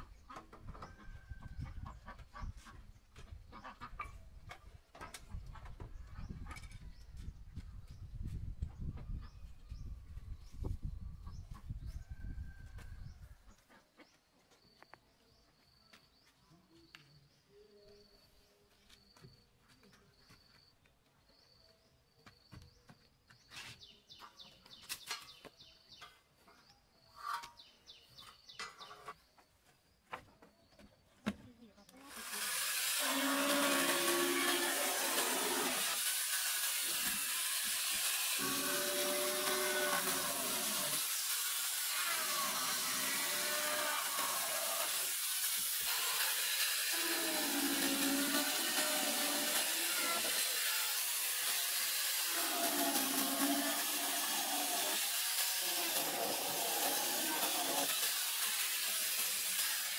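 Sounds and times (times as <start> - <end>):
chickens clucking: 0.0 - 6.7.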